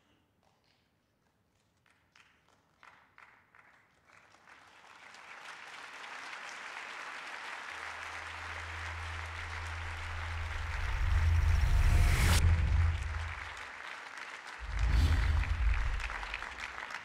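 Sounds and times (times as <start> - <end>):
audience applause: 3.2 - 17.0
low hum: 7.8 - 13.6, 14.6 - 16.7.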